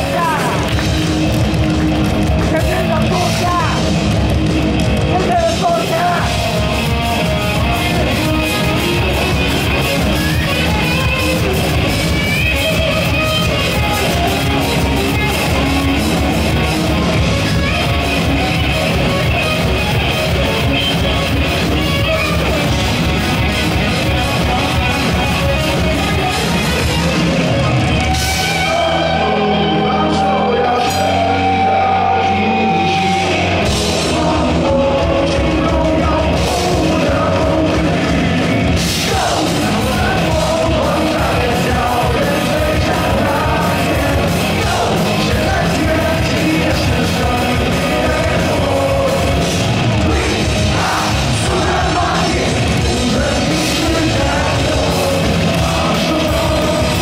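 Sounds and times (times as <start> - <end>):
man singing and shouting: 0.0 - 0.8, 2.4 - 4.0, 5.0 - 18.6, 28.4 - 57.0
live rock band playing: 0.0 - 57.0.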